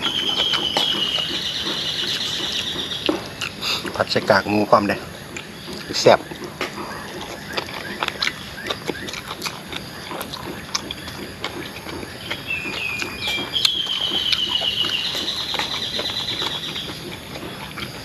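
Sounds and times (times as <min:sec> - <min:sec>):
bird singing high trill: 0:00.0 - 0:03.1, 0:12.2 - 0:16.9
wet chewing and lip-smacking: 0:00.0 - 0:18.0.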